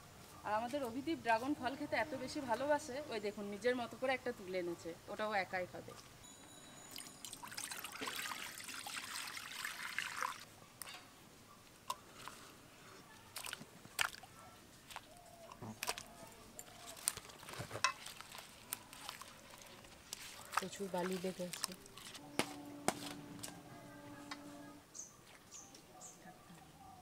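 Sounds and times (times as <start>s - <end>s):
water splashing and trickling: 6.8s - 10.5s, 13.2s - 16.1s, 17.9s - 22.2s.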